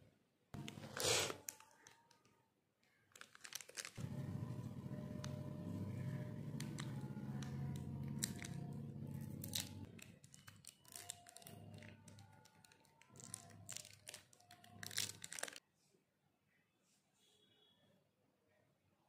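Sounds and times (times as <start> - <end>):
plastic wrapper crinkling and tearing: 0.6 - 4.0, 8.1 - 8.6, 9.4 - 15.6.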